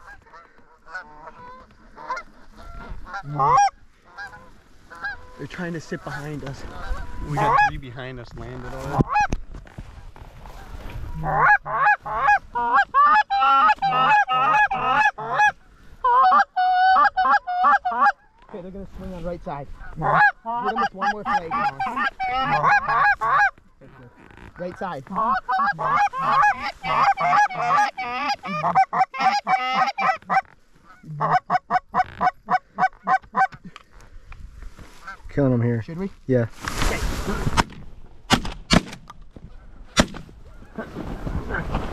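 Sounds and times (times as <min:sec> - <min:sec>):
geese honking: 0:00.0 - 0:07.8, 0:09.0 - 0:09.4, 0:10.5 - 0:18.5, 0:19.7 - 0:33.6.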